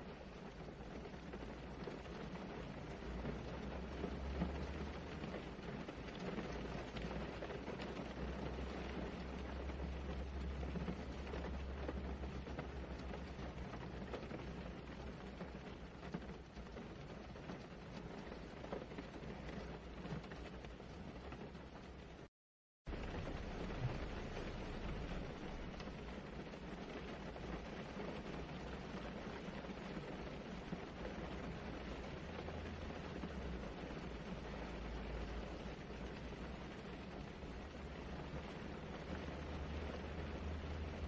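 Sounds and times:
steady rain hiss: 0.0 - 22.3, 22.9 - 41.0
deep low rumble: 22.9 - 26.2.

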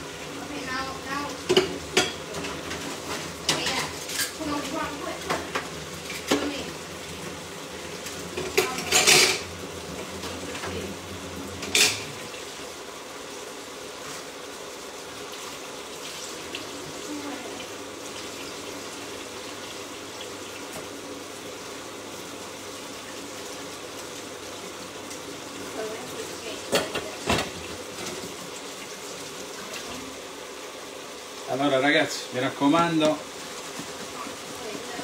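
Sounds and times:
pots and utensils clinking: 1.1 - 6.8, 8.0 - 10.9, 11.6 - 12.4, 25.8 - 28.4.

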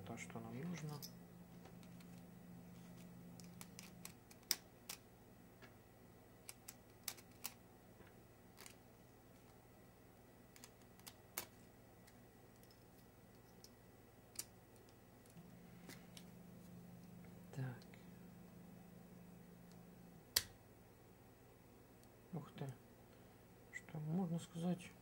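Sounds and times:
faint low hum: 0.0 - 25.0.

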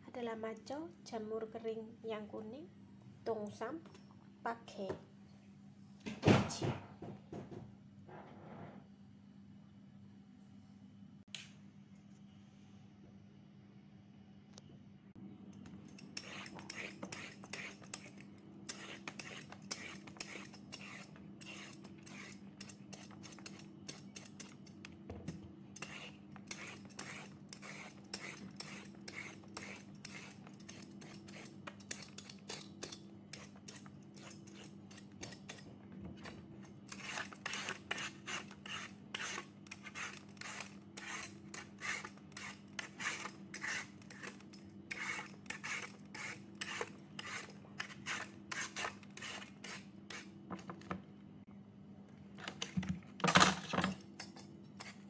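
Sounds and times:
peeler scraping a carrot: 15.8 - 24.8, 25.8 - 50.4, 54.2 - 55.0.

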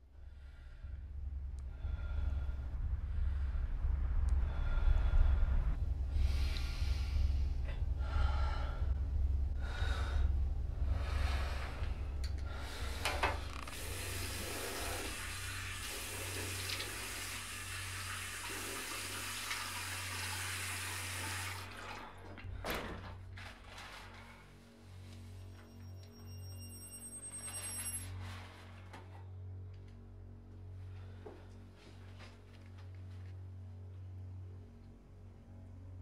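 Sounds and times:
low hum: 0.0 - 36.0
person breathing hard: 0.1 - 15.5
tap water running into sink: 13.7 - 22.0.

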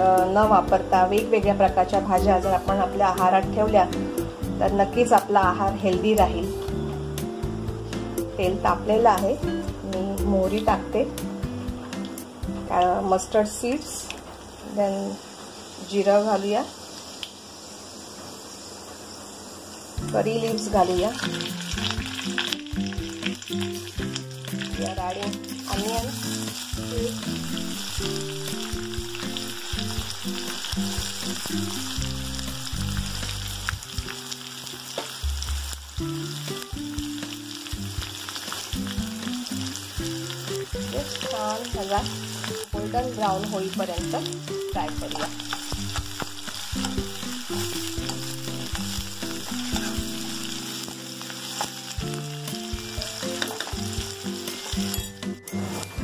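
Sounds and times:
onions sizzling in hot oil: 0.0 - 56.0.

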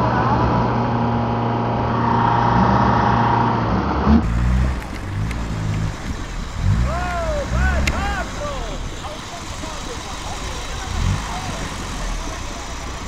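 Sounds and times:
off-road vehicle engine running: 3.8 - 13.0.

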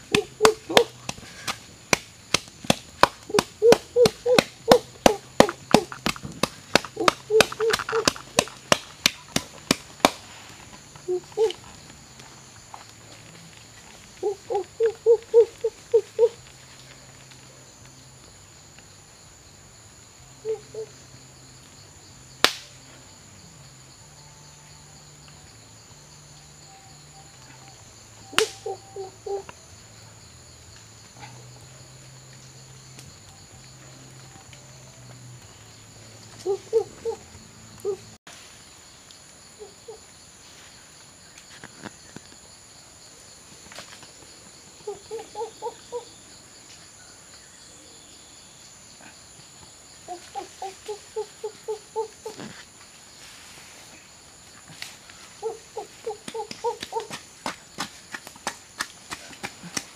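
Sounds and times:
sharp crack: 0.0 - 10.4, 22.4 - 22.8, 28.4 - 28.7
insects buzzing: 0.0 - 59.9.

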